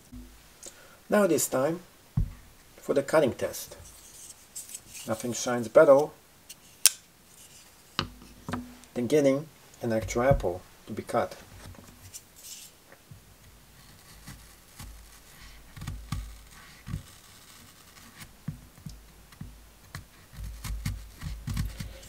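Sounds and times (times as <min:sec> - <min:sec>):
knocks on wooden board: 0:02.2 - 0:02.4.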